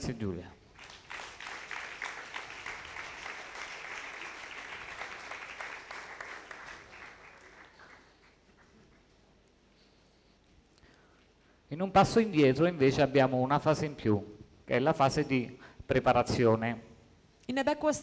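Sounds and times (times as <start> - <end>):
audience applauding: 0.7 - 9.2.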